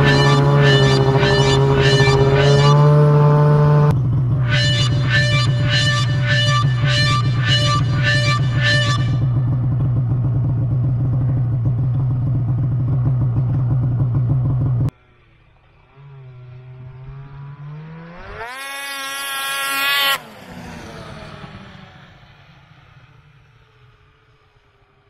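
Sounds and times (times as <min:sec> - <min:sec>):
snowmobile engine revving: 0:00.0 - 0:11.4, 0:15.8 - 0:22.3
snowmobile engine humming: 0:00.0 - 0:15.0, 0:15.7 - 0:22.8.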